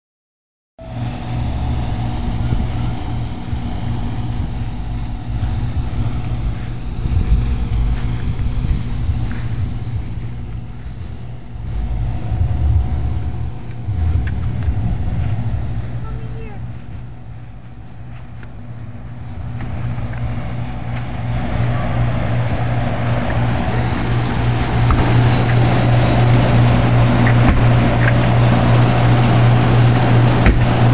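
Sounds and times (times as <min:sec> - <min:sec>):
low electrical hum: 0:00.8 - 0:30.9
wind buffeting microphone: 0:01.5 - 0:18.2.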